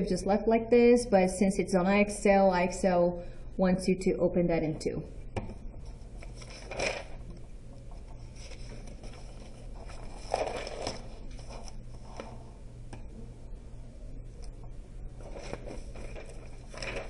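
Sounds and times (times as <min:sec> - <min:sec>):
low steady hum: 0:00.0 - 0:17.0
paper rustling and scraping: 0:06.2 - 0:07.2, 0:08.2 - 0:12.5, 0:15.2 - 0:17.0.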